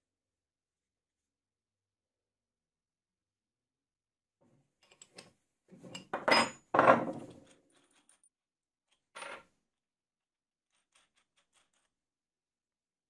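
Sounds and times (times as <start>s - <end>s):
metal hardware clattering on wood: 5.8s - 7.5s.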